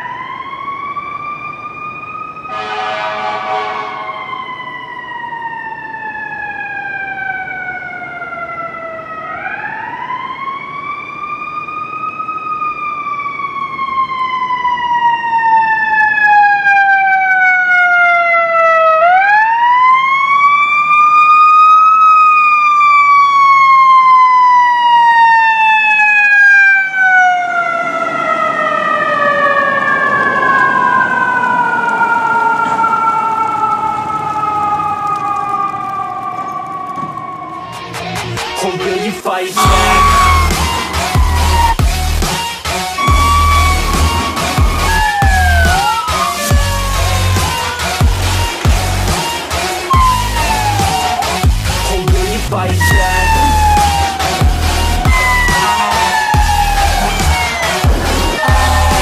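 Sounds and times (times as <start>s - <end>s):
fire engine siren wailing: 0.0s - 59.0s
horn blast: 2.5s - 4.2s, 39.6s - 59.0s
truck engine and tyres passing: 39.6s - 59.0s.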